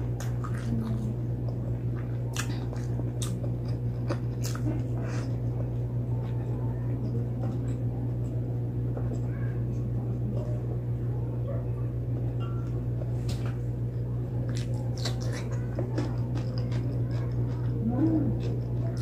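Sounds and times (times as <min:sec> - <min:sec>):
steady low hum: 0:00.0 - 0:19.0
cucumber crunching: 0:00.2 - 0:05.4, 0:14.4 - 0:19.0
wet chewing and lip smacking: 0:00.2 - 0:06.4, 0:14.4 - 0:19.0.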